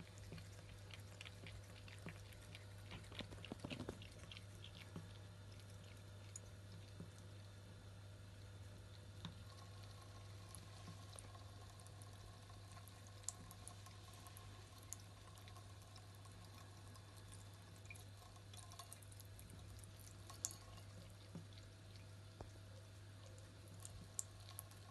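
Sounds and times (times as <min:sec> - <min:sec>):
cat lapping water: 0:00.0 - 0:24.9
water trickling from tap: 0:09.2 - 0:24.9.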